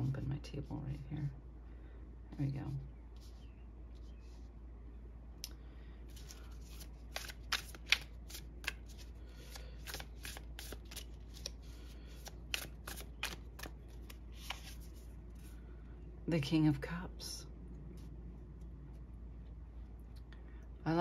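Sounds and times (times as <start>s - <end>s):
cards being shuffled: 6.1s - 15.5s.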